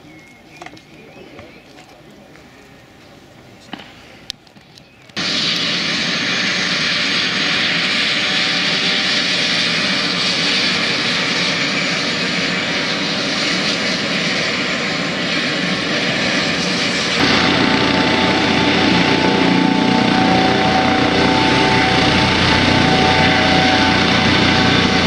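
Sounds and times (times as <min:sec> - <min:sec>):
helicopter turbine whine: 0:05.2 - 0:25.0.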